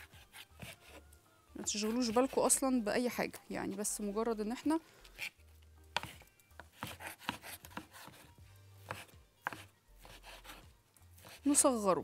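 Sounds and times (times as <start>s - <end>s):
knife chopping on wooden board: 6.0s - 10.6s.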